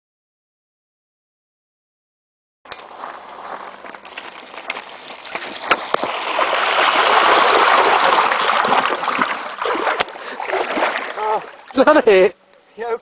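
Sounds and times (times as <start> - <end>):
bike splashing through water: 2.8 - 12.0.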